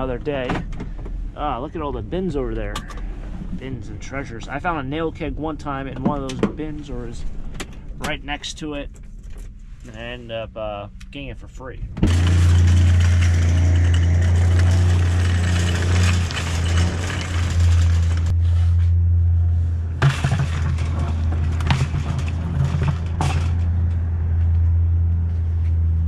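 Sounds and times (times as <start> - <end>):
low engine drone: 0.0 - 26.0
metal scrap clanking: 12.0 - 18.4, 20.0 - 23.8
wire cart rattling on pavement: 12.1 - 18.3, 20.0 - 23.8.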